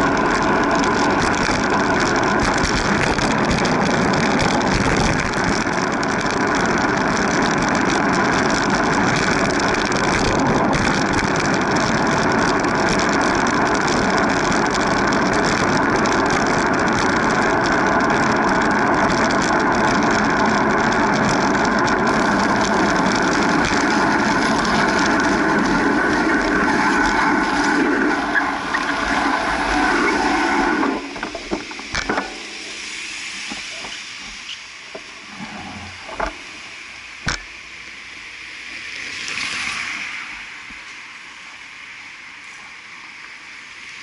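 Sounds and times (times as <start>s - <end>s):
small knocks from road bumps: 0.0s - 25.6s, 31.1s - 32.7s, 36.1s - 36.4s, 37.2s - 37.5s
rushing wind and road noise: 0.0s - 44.0s.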